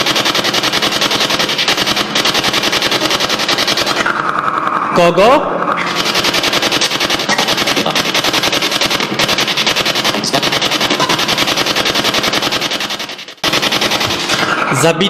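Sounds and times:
chopped radio static: 0:03.8 - 0:15.0.

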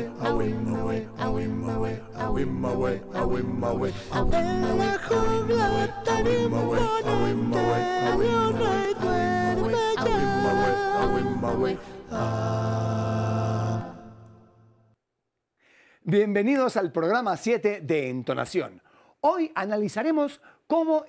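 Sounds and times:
vocal group singing a cappella: 0:00.0 - 0:14.8.

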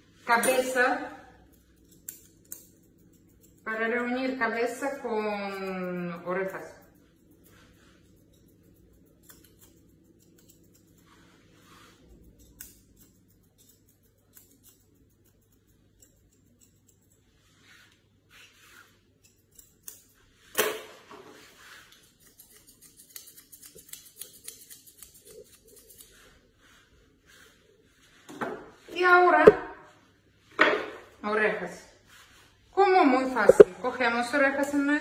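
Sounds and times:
scissors snipping hair: 0:00.3 - 0:18.0, 0:18.8 - 0:26.4, 0:33.3 - 0:35.0.

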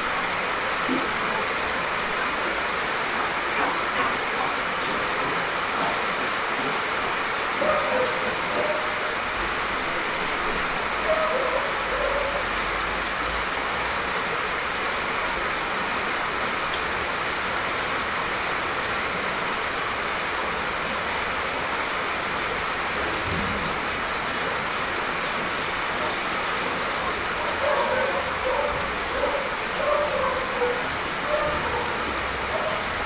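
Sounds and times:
steady rain falling: 0:00.0 - 0:33.0
dog barking: 0:27.5 - 0:33.0.

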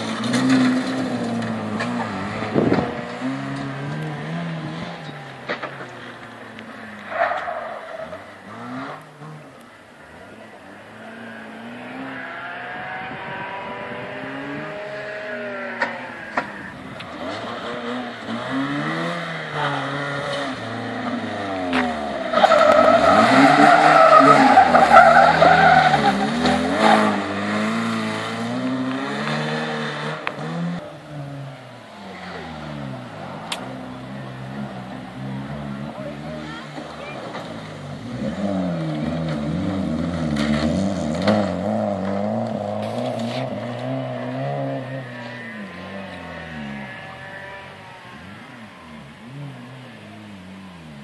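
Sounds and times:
car engine revving: 0:00.0 - 0:51.0
tyres squealing: 0:21.9 - 0:27.9.

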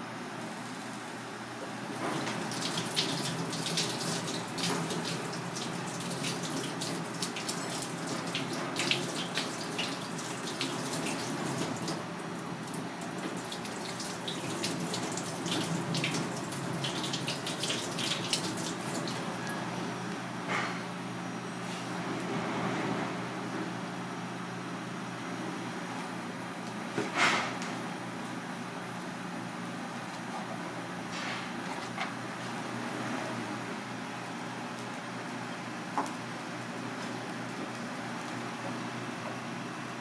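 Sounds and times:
tap water running into sink: 0:02.1 - 0:12.0, 0:12.7 - 0:19.3.

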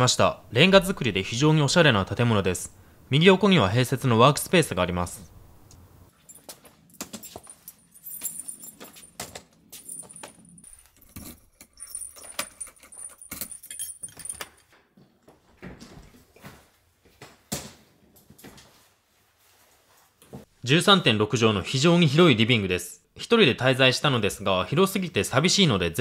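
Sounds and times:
keys jangling: 0:06.1 - 0:14.7.

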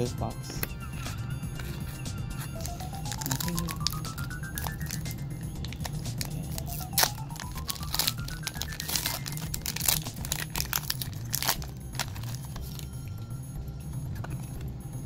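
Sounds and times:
background music: 0:00.0 - 0:15.0
foil wrapper crinkling and tearing: 0:02.4 - 0:13.1.

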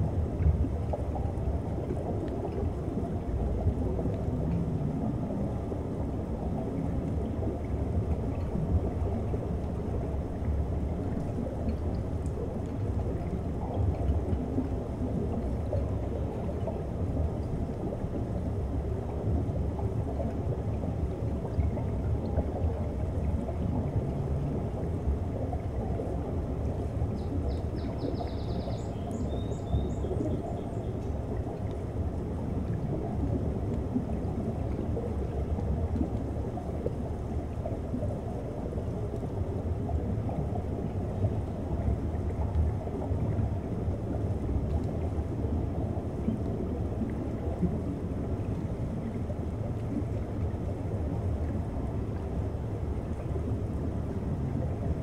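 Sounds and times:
underwater sea rumble: 0:00.0 - 0:55.0.

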